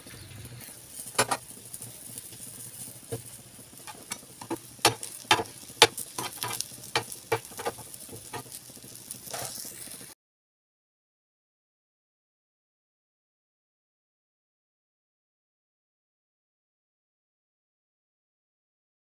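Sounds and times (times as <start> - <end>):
omelette sizzling in a frying pan: 0.0 - 10.2
metal spatula scraping a pan: 1.0 - 1.8, 3.1 - 8.6, 9.2 - 9.9.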